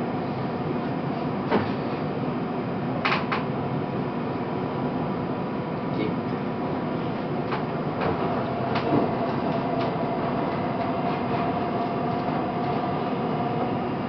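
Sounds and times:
train running noise: 6.0 - 14.0.

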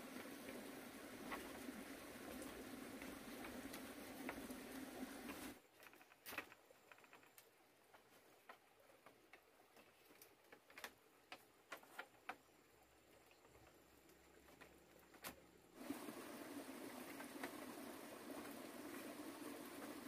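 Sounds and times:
bamboo poles clicking and knocking: 1.2 - 15.5.

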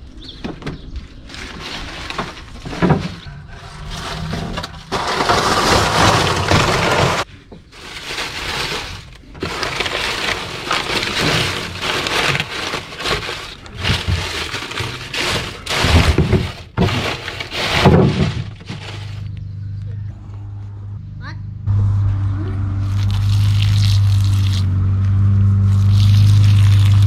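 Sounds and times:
dry leaves crackling and rustling: 1.2 - 19.3, 22.9 - 24.6, 25.7 - 27.0.

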